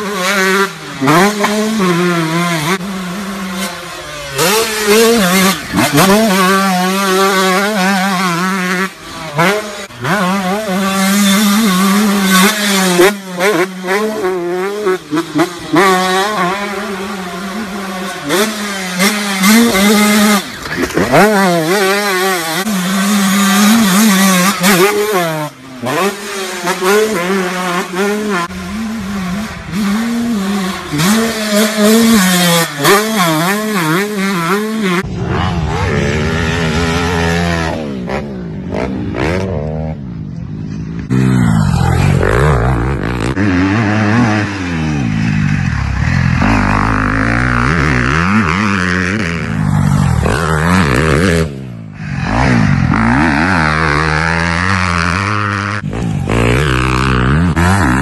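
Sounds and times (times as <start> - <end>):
dirt bike engines revving: 0.0 - 58.0.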